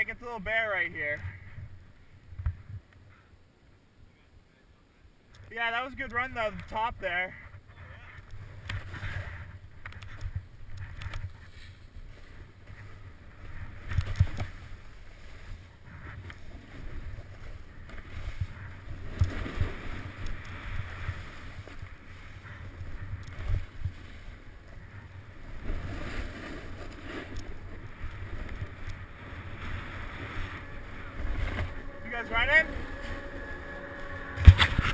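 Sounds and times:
wind buffeting microphone: 0:07.6 - 0:34.9
skis scraping snow: 0:08.4 - 0:34.9.

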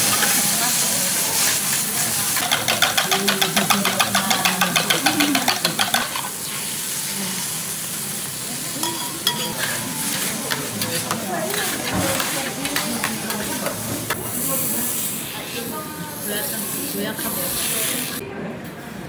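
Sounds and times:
food sizzling on griddle: 0:00.0 - 0:18.2
eggs beaten in metal cup: 0:02.4 - 0:06.3, 0:08.8 - 0:13.8.

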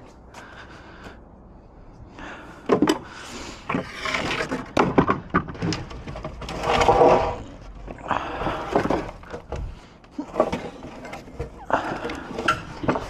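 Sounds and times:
wooden knocks and clatter: 0:02.7 - 0:03.1, 0:03.7 - 0:13.0.

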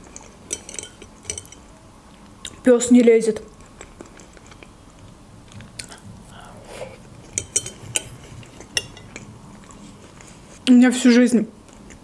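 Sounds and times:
fork clinking on ceramic plate: 0:00.1 - 0:01.6, 0:07.3 - 0:09.3.

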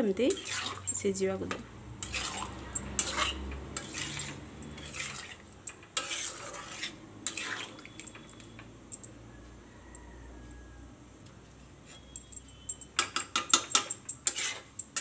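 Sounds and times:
metal spatula scraping a pan: 0:00.2 - 0:01.0, 0:02.0 - 0:08.2, 0:13.5 - 0:15.0.

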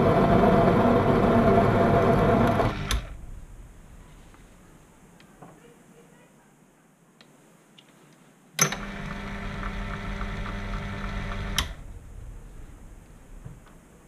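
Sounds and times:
lathe motor running: 0:00.0 - 0:03.2, 0:08.8 - 0:12.0.

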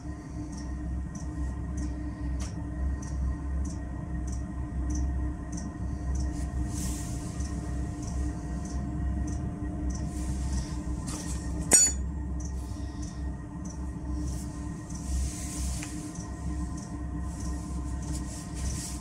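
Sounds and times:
heater fan hum: 0:00.0 - 0:19.0.

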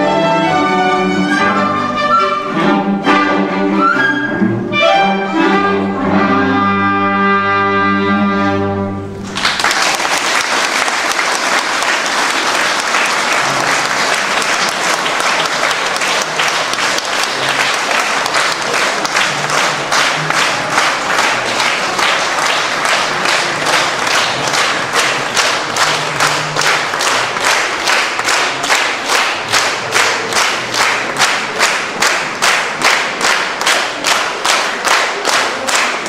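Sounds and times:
orchestra playing: 0:00.0 - 0:09.5, 0:11.4 - 0:36.0.

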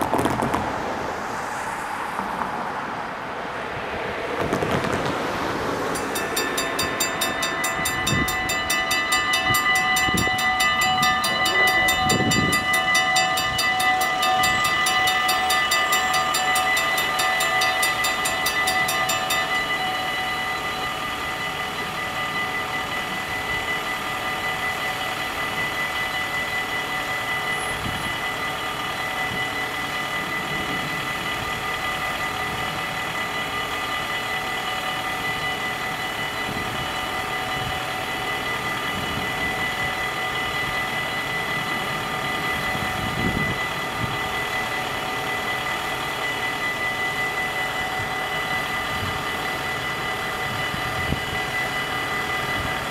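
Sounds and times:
level crossing bell ringing: 0:05.8 - 0:52.9.

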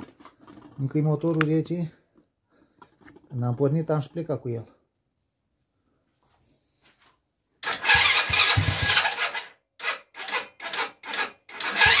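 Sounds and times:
engine starter cranking: 0:07.6 - 0:12.0.

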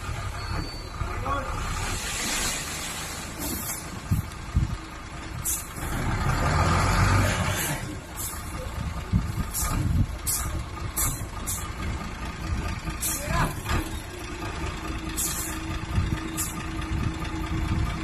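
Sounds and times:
truck engine running: 0:00.0 - 0:18.0
sand pouring: 0:01.8 - 0:03.9.

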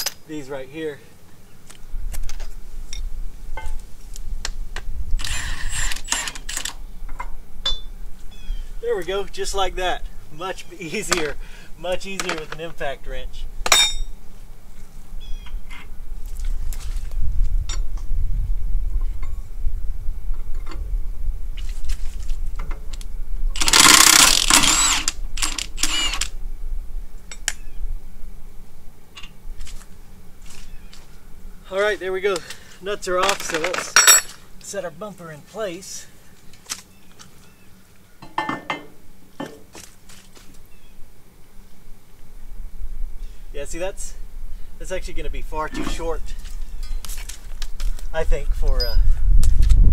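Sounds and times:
impact wrench whining: 0:05.2 - 0:06.8, 0:23.6 - 0:26.3
sharp clicks of tool handling: 0:33.2 - 0:34.4.

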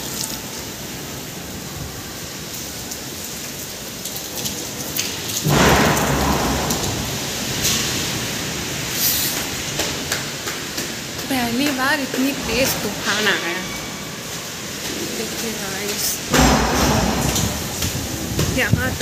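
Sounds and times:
heavy rain: 0:00.0 - 0:19.0
loud thunderclap rumbling: 0:05.4 - 0:08.9, 0:16.2 - 0:19.0.

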